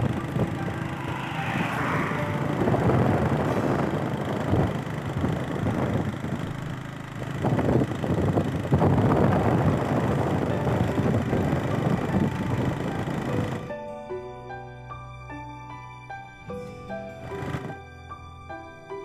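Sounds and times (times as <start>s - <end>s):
wind rushing on microphone: 0.0s - 13.7s
motorcycle engine running: 0.0s - 13.8s.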